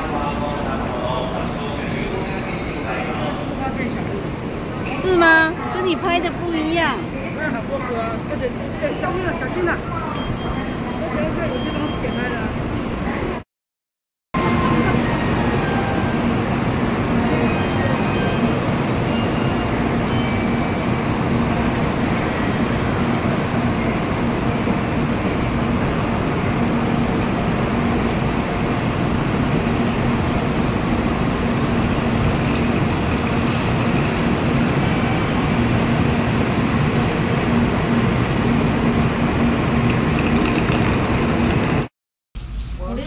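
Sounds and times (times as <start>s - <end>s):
train low hum: 0.0s - 13.4s, 14.4s - 43.0s.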